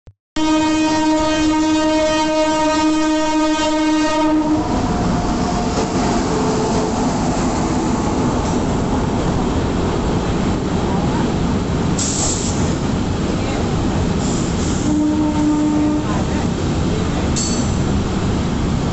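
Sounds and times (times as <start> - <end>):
locomotive horn blast: 0.4 - 4.8, 14.8 - 16.3
train rumbling past: 0.4 - 18.9.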